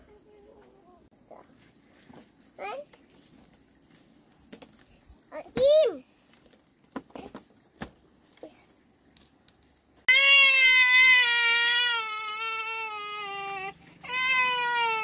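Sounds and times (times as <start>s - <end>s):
toddler crying: 10.1s - 15.0s.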